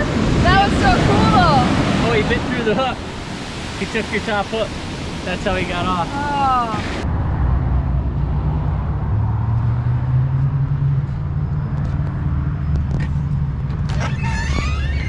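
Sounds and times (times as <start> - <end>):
voices: 0.0 - 3.1, 3.8 - 7.0.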